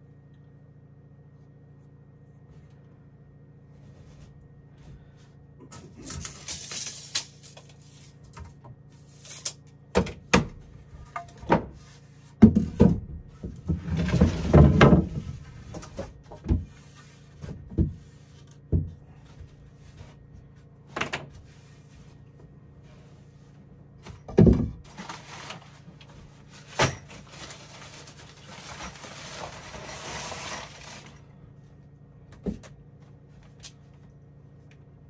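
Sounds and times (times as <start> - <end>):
wooden knocks and thuds: 12.4 - 16.8, 17.4 - 19.2, 24.1 - 24.9.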